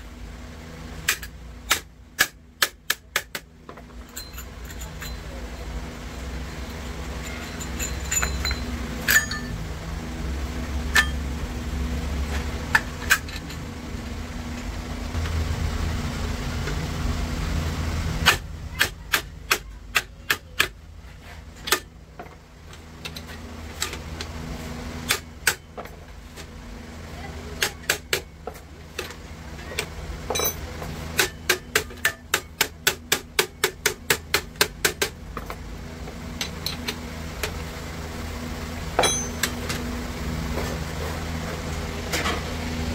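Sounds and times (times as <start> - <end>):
hammer striking metal: 7.2 - 9.6, 10.9 - 11.3, 30.3 - 35.2, 39.0 - 39.8.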